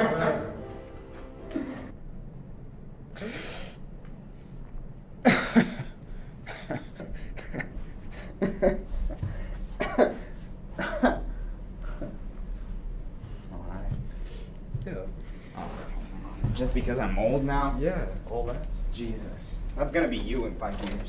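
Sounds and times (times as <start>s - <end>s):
man laughing breathily: 5.3s - 12.2s.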